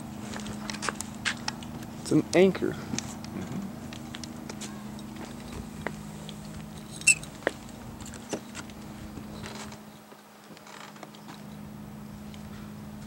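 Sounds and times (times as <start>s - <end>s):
steady low hum: 0.0s - 13.0s
footsteps on pavement: 0.2s - 11.5s
sharp high squeaky click: 7.0s - 7.3s.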